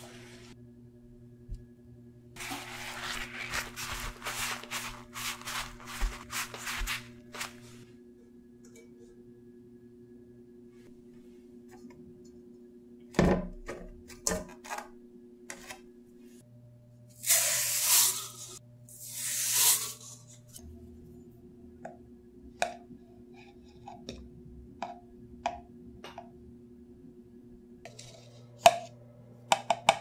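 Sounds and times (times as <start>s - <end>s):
sugar pouring into a pot: 2.4s - 7.0s, 17.2s - 20.2s.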